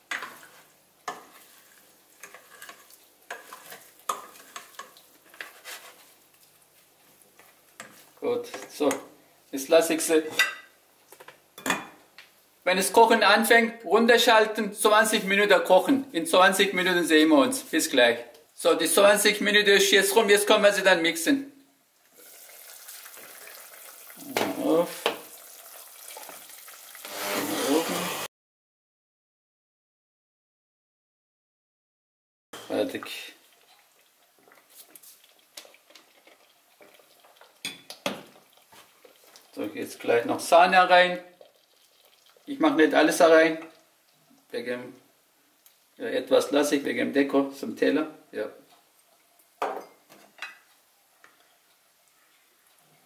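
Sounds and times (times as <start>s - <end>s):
soup simmering with a hiss: 0.0s - 8.3s, 21.8s - 28.3s, 32.6s - 47.5s, 48.6s - 53.0s
plastic spoon stirring in a pot: 0.1s - 6.5s, 33.6s - 39.5s
immersion blender churning soup: 26.1s - 28.3s.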